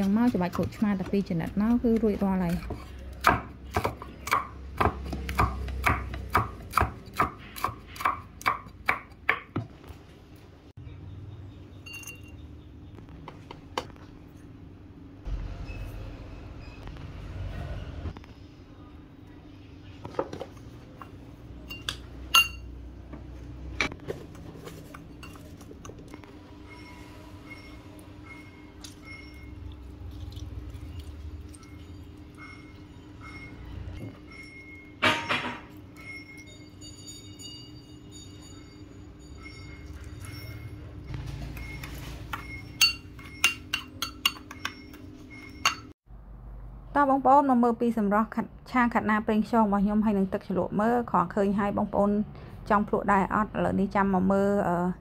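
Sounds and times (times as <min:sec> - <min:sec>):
metal spoon clinking in ceramic bowl: 0:21.7 - 0:22.7, 0:42.3 - 0:46.0.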